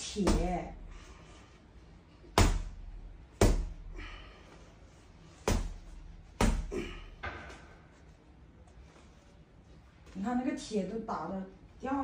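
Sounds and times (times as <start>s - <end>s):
hammer thudding on body: 0.2s - 0.7s, 2.4s - 2.8s, 3.4s - 3.8s, 5.4s - 7.8s.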